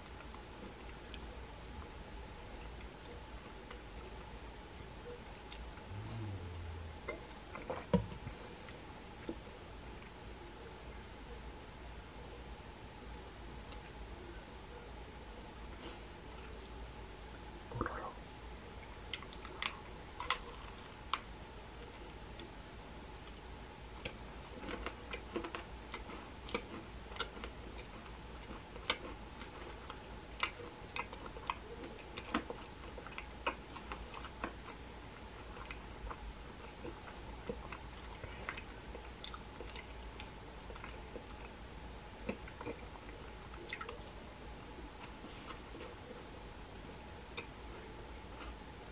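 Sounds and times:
steady hum: 0.0s - 25.0s
chewing crisp macaron: 18.8s - 22.6s, 23.2s - 44.1s, 47.2s - 48.7s.

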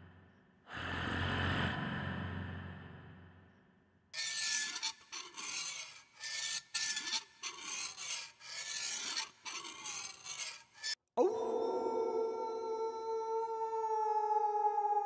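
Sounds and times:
harsh rasping scrapes: 4.2s - 11.0s.

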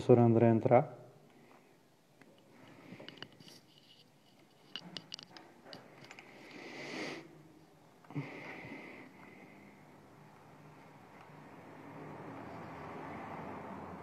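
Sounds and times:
person sniffing breath: 6.2s - 7.4s, 8.1s - 10.0s.

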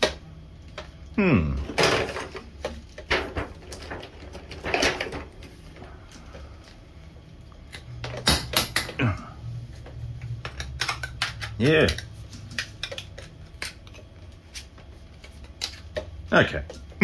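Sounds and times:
low steady hum: 0.0s - 17.0s
plastic parts knocking and clicking: 1.6s - 5.5s, 7.7s - 9.0s, 10.2s - 14.1s.

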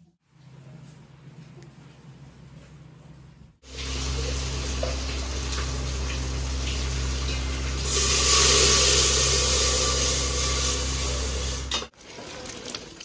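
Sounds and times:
steady low hum: 3.2s - 11.9s
milk pouring between steel pots: 11.9s - 13.0s.

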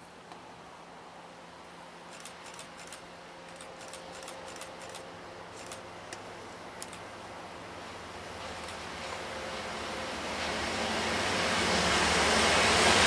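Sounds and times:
train rumble on rails: 0.6s - 13.0s
sharp high ticks: 2.1s - 5.0s.

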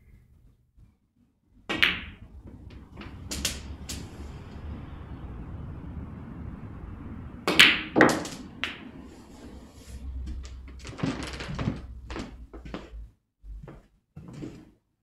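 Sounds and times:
snooker balls clicking: 1.7s - 4.4s, 10.1s - 12.9s
balls knocking and tapping: 1.7s - 4.6s, 7.5s - 9.0s, 10.0s - 13.0s
low steady hum: 1.7s - 13.6s.

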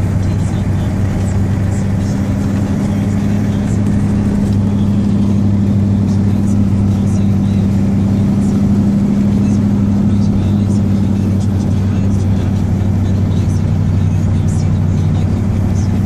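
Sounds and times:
diesel engine low drone: 0.0s - 16.0s.

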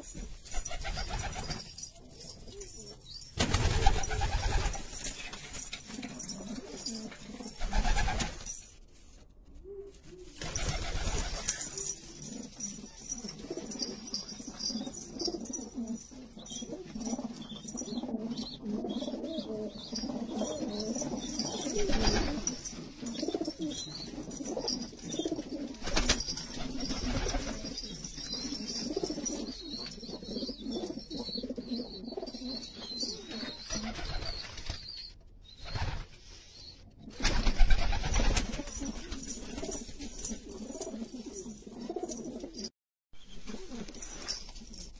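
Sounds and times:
wings flapping: 0.5s - 1.8s, 3.4s - 6.2s, 7.5s - 8.6s, 10.3s - 12.0s, 25.8s - 27.7s, 37.2s - 40.4s
pigeons cooing: 5.8s - 8.3s, 9.6s - 34.2s.

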